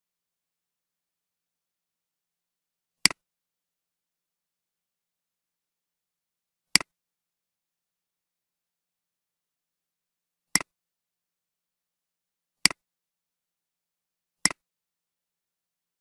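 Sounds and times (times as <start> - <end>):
computer mouse clicks: 14.4 - 14.6.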